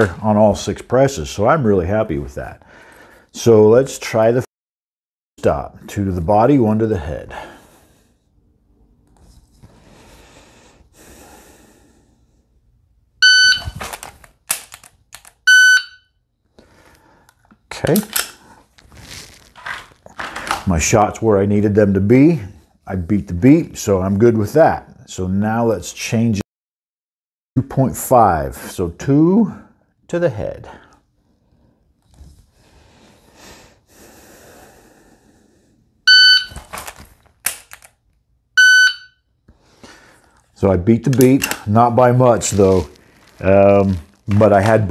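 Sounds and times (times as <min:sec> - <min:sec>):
shot timer beep: 0:13.2 - 0:13.8, 0:15.5 - 0:16.0, 0:36.1 - 0:36.6, 0:38.6 - 0:39.2
pistol handling clicks: 0:13.9 - 0:15.4, 0:37.4 - 0:38.0.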